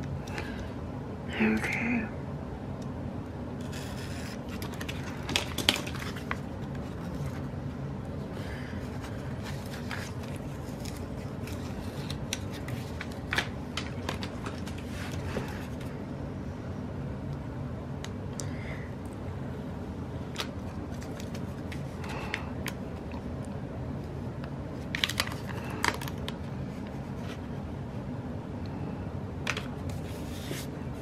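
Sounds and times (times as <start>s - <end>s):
steady low hum: 0.0s - 31.0s
paper rustling: 3.6s - 7.5s, 8.4s - 15.9s, 20.3s - 22.8s, 24.8s - 27.6s, 29.5s - 31.0s.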